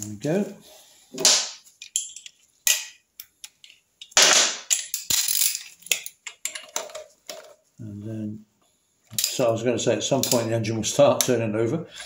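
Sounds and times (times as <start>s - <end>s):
metal tools clinking: 1.8s - 2.4s, 3.6s - 7.4s.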